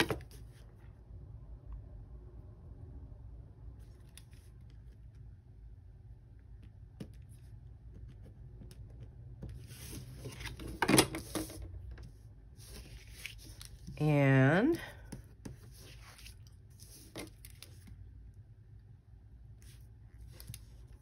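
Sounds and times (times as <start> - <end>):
paper scratching and handling: 9.6 - 11.6, 12.6 - 14.0, 15.4 - 17.9.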